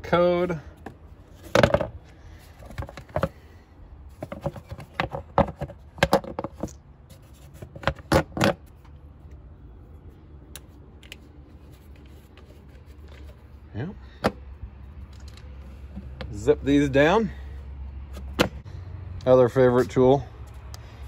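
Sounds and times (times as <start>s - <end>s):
parts clicking and knocking: 0.8s - 9.4s, 10.4s - 13.4s, 14.2s - 16.4s.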